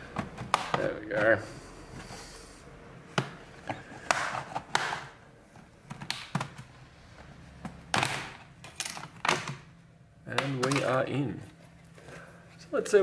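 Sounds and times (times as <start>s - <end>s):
plastic clips snapping loose: 5.9s - 6.6s, 10.3s - 11.0s.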